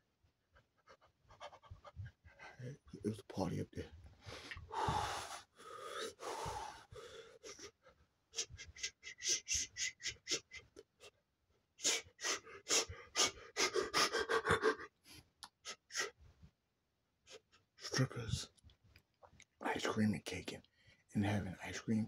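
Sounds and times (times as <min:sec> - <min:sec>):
man gasping breaths: 0:04.2 - 0:07.8.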